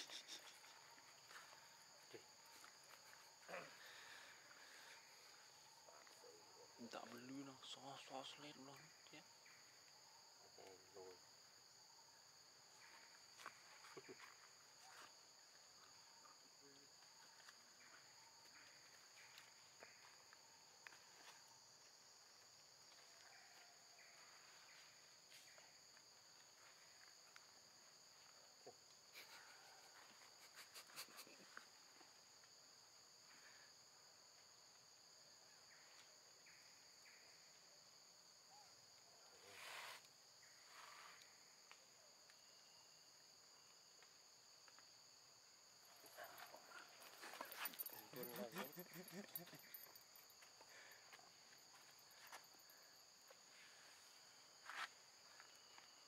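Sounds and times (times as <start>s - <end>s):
high-pitched insect drone: 46.0s - 53.6s.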